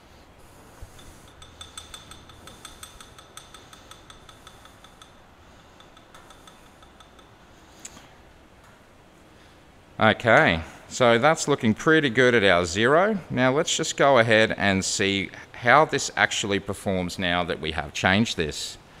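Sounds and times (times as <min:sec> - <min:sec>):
light metallic ticks and clinks: 0:00.9 - 0:08.0.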